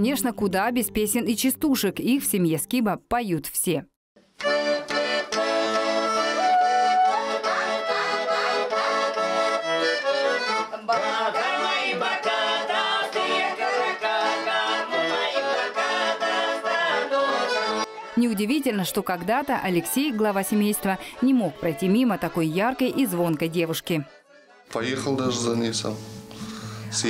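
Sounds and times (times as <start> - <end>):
button accordion playing folk tune: 4.4 - 27.0
people singing: 10.6 - 26.0.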